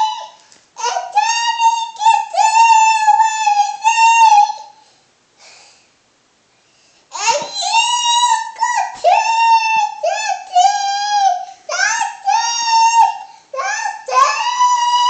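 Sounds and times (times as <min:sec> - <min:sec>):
toddler singing: 0:00.0 - 0:04.8, 0:07.1 - 0:15.0.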